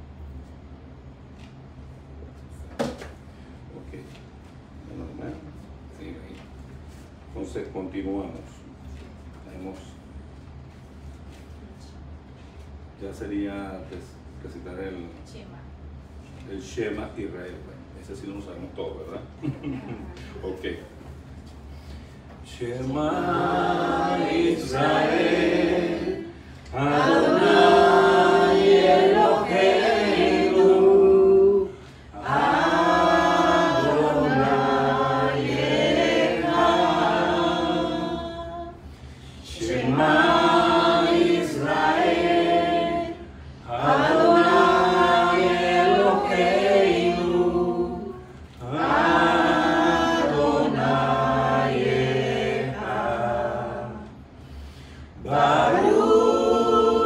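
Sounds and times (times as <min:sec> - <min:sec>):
voices singing a slow prayer song: 0:22.0 - 0:57.0.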